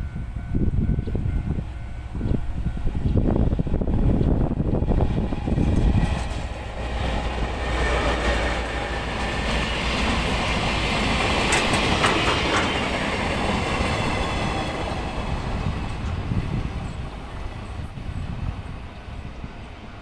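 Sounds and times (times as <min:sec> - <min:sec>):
locomotive engine rumble: 0:00.0 - 0:20.0
wheels clacking over rail joints: 0:05.0 - 0:16.2.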